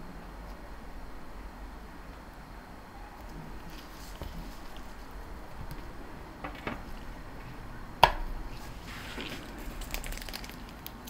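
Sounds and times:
soft rustling: 3.3 - 5.9.

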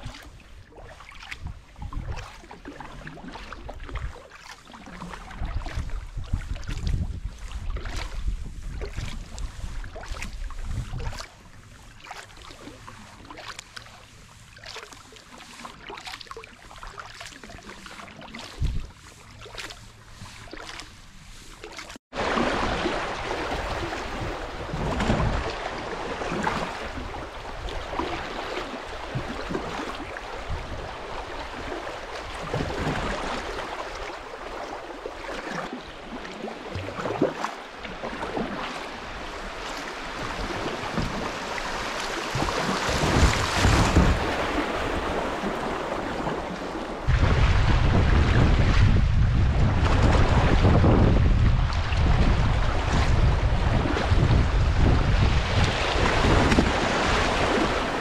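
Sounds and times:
paddle splashes: 0.0 - 58.0
shallow water rushing over riffle: 21.8 - 58.0.

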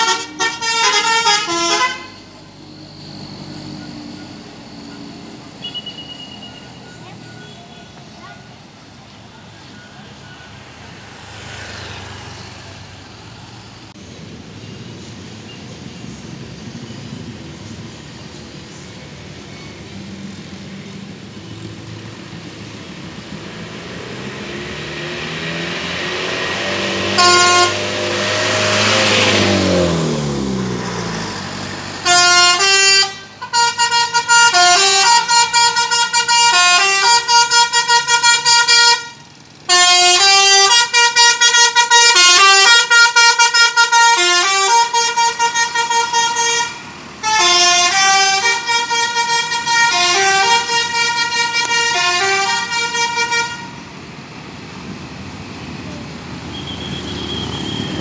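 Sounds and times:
bus horn playing flute-like melody: 0.0 - 8.3, 26.2 - 30.0, 32.0 - 53.9, 56.4 - 58.0
bus engine noise: 0.0 - 58.0.

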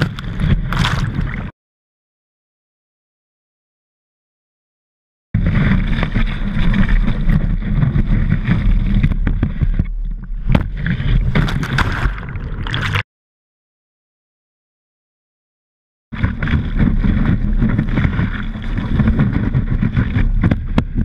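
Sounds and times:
knocks and splashes: 0.0 - 1.5, 5.4 - 13.0, 16.2 - 21.0.

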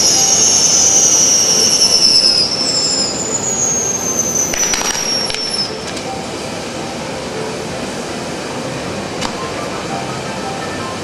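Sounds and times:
shrill falling whistles: 0.0 - 5.8
fireworks crackles: 0.0 - 6.0
fireworks fountains hissing: 0.0 - 10.0.

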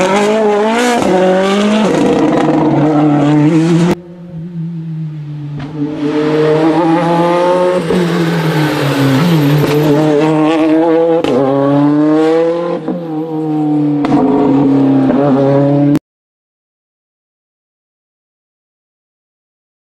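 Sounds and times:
rally car engine revving hard: 0.0 - 4.8, 5.5 - 16.0.

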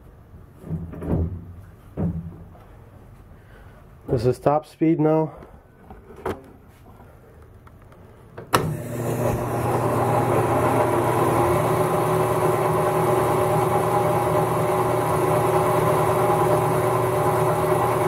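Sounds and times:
lathe switch click: 8.5 - 8.8
lathe motor running: 8.6 - 18.0.

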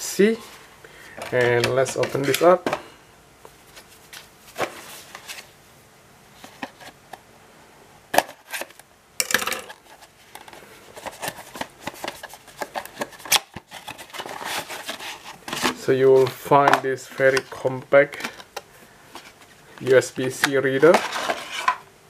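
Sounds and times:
cardboard box packaging handled: 9.8 - 18.6.

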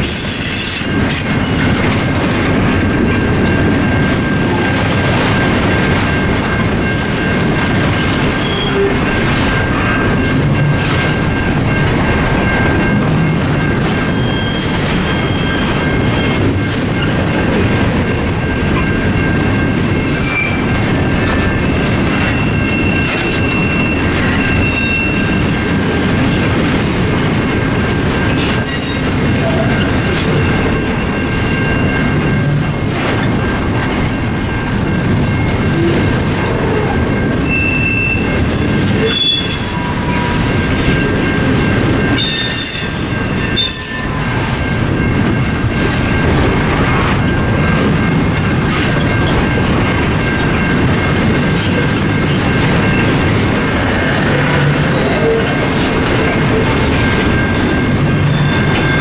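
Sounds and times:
crossing bells ringing: 0.0 - 59.0
train wheels rumbling on rails: 0.0 - 59.0
wheels clicking over rail joints: 0.0 - 59.0
wheel squeals: 8.4 - 10.0, 14.0 - 16.4, 20.2 - 20.6, 22.2 - 25.5, 36.6 - 40.5, 58.1 - 59.0.

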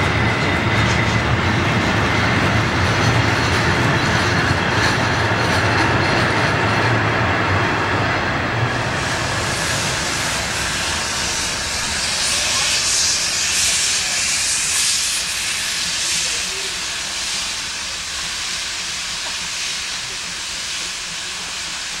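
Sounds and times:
steam hissing from locomotive: 8.7 - 22.0.

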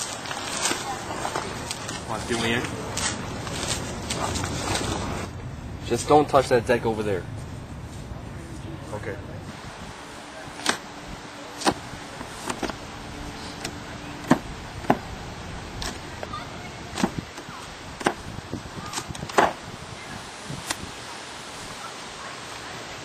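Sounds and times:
playing cards slapped on cardboard: 10.6 - 10.8, 11.6 - 12.8, 13.6 - 15.1, 17.0 - 18.2, 18.9 - 19.6.

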